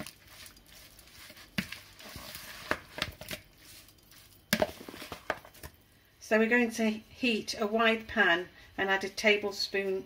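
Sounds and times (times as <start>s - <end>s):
wet squelching of stirred meat: 0.0s - 5.2s.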